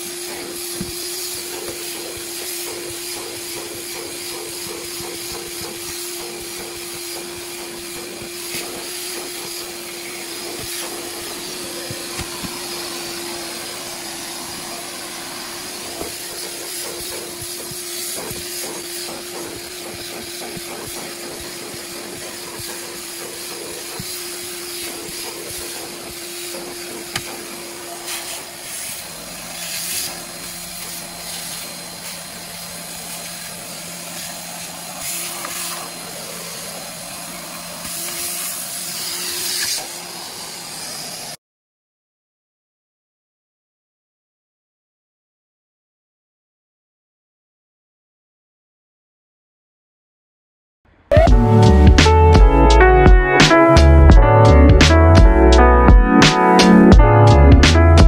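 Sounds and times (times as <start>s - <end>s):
nozzle scratching carpet: 0.0s - 40.6s
vacuum cleaner whining: 0.0s - 41.4s, 51.1s - 58.0s.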